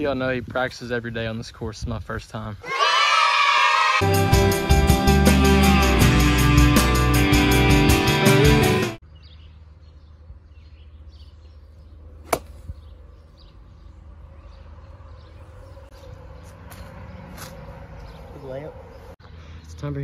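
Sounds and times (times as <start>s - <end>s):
rock guitar music: 4.0s - 9.0s
golf club striking ball: 12.2s - 12.7s.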